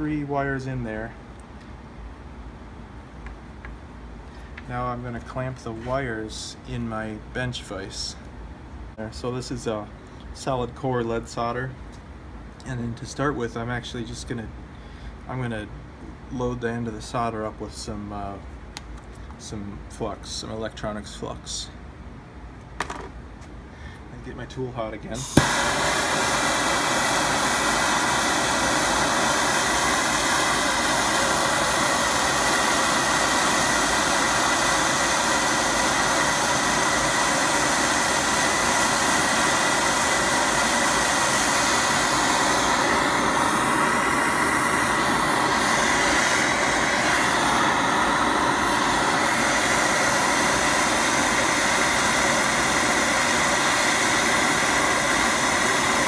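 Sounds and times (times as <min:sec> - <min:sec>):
torch flame roaring: 0:25.1 - 0:56.0.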